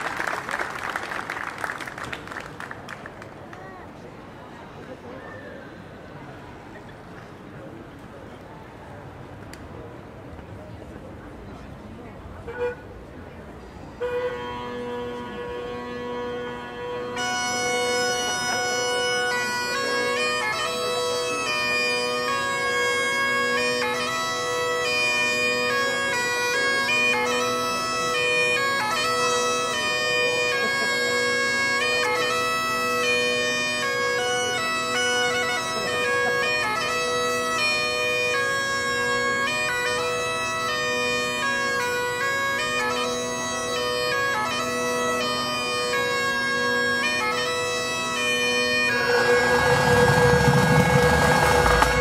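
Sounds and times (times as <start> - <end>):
pipe band playing: 13.6 - 52.0.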